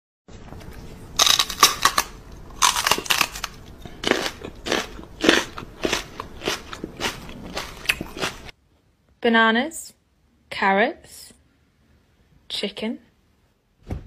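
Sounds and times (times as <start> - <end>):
crunchy chewing: 0.6 - 8.5.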